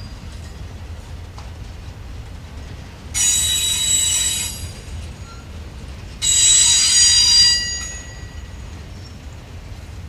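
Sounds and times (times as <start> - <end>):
freight train rumbling past: 0.0 - 10.0
train wheels squealing: 3.2 - 9.5.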